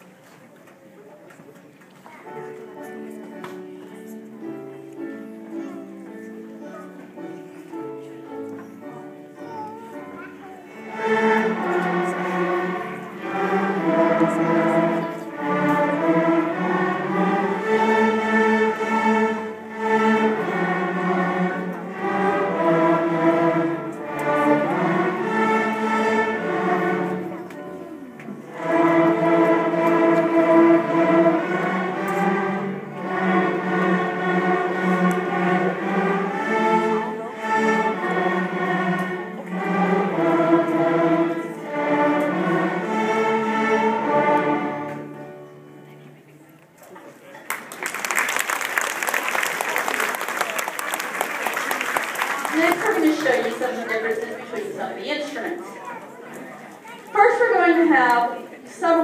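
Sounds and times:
string orchestra playing: 0:02.1 - 0:46.7, 0:47.5 - 0:59.0
violin playing along: 0:09.2 - 0:45.6.

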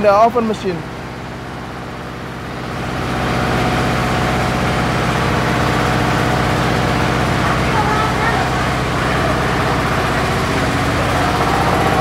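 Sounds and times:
factory machinery humming: 0:00.0 - 0:12.0
rushing noise: 0:09.1 - 0:12.0.

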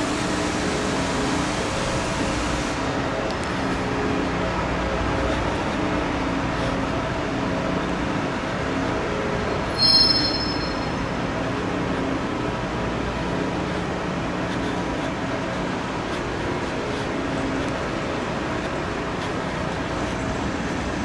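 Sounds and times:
rail-grinding train grinding: 0:00.0 - 0:21.0
high-pitched squeal: 0:09.6 - 0:11.2.

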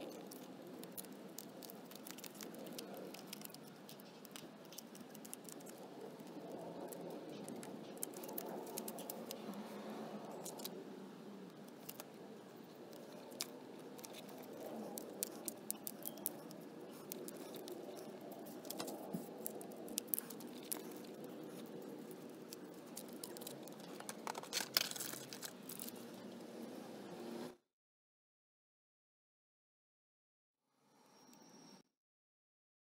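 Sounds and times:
small clicks and rattles: 0:00.0 - 0:09.5
rustling and scraping: 0:11.6 - 0:27.0.

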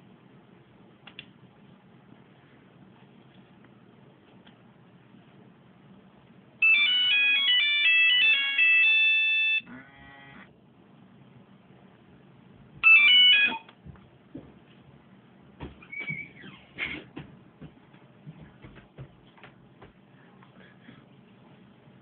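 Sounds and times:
phone ringtone beeping melody: 0:06.6 - 0:09.7, 0:12.8 - 0:13.7
phone buzz: 0:06.6 - 0:10.5, 0:12.8 - 0:13.7.

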